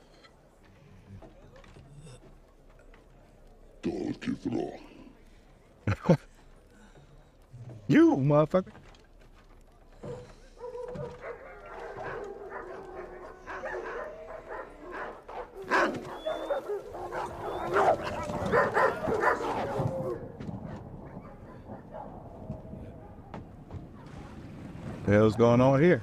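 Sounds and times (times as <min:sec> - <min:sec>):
dogs barking and yelping: 0:10.0 - 0:24.2
dogs howling: 0:10.1 - 0:23.8.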